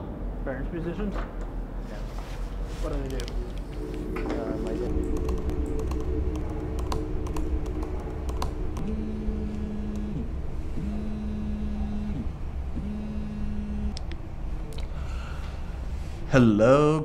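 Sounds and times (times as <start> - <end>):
mobile phone vibrating: 12.8 - 14.0.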